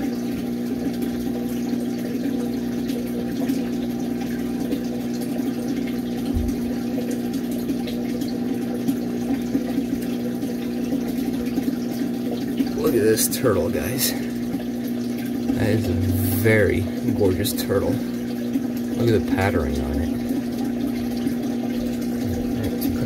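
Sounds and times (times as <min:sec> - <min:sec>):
small motor humming: 0:19.0 - 0:23.0.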